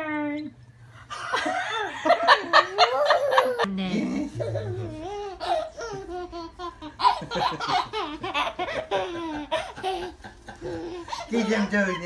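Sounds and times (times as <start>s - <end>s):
baby laughing: 2.5s - 3.7s, 4.3s - 12.0s.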